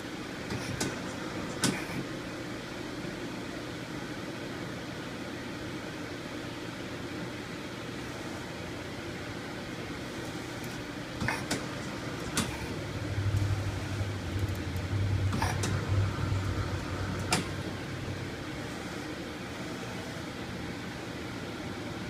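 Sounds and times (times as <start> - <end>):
lathe spindle humming: 11.6 - 19.5.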